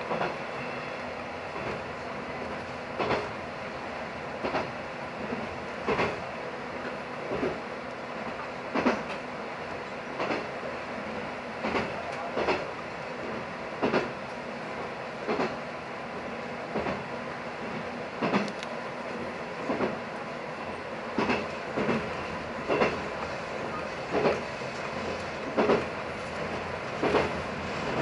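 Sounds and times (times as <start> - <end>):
train wheels clicking over rail joints: 0.0 - 0.8, 1.5 - 3.4, 4.3 - 9.3, 10.0 - 10.6, 11.6 - 28.0
diesel engine and rolling drone: 15.8 - 28.0.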